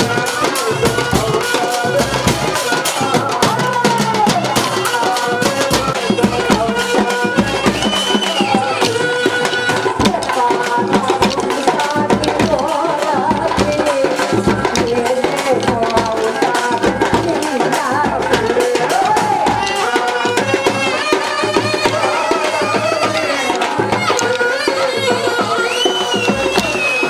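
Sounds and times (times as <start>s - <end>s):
steady drum beat: 0.0s - 27.0s
woman singing through loudspeaker: 0.0s - 27.0s
wooden sticks clacking together: 7.9s - 17.2s, 23.5s - 24.9s.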